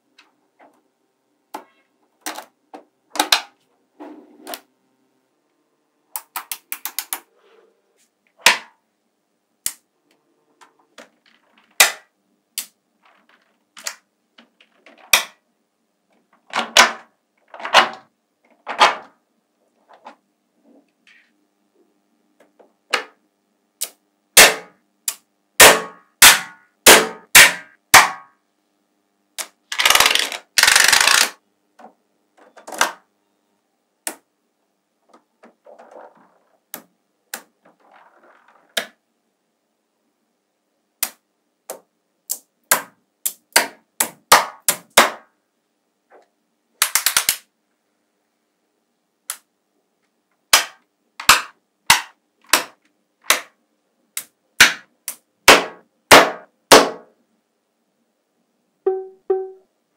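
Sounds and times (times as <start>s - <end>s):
rattle of balls clacking together: 11.0s - 12.1s, 29.7s - 31.4s
magnetic balls clicking: 29.4s - 31.4s.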